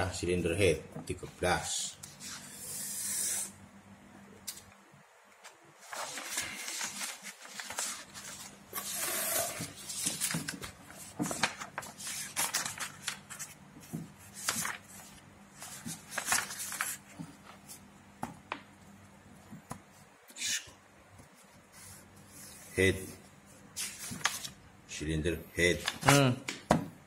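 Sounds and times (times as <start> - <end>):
book pages flipping: 5.3 - 18.8, 23.8 - 24.6.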